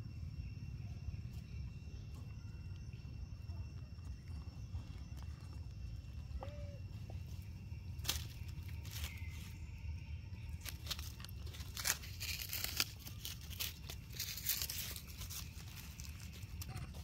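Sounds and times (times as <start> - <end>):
dry leaves crackling and rustling: 7.9 - 9.7, 10.6 - 17.0.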